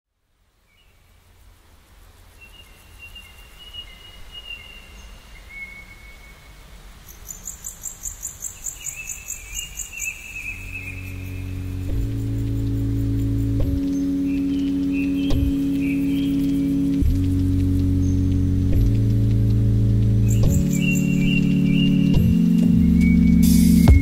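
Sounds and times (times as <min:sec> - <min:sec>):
high cricket-like chirping: 0:07.1 - 0:13.5
low rumble: 0:10.9 - 0:24.0.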